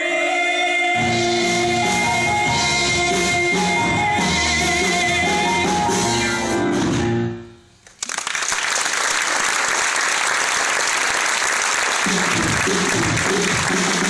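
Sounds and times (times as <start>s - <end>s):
ensemble singing with band: 0.0s - 5.9s
audience applause: 7.8s - 14.0s.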